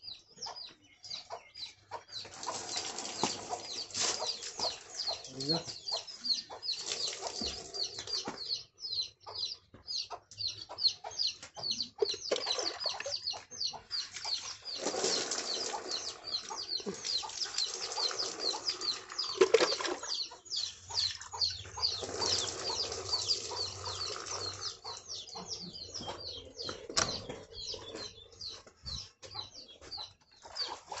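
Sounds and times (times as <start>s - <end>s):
small birds chirping: 0.0s - 31.0s
water pouring and splashing: 2.2s - 5.4s, 6.7s - 8.3s, 14.0s - 20.3s, 20.9s - 25.0s.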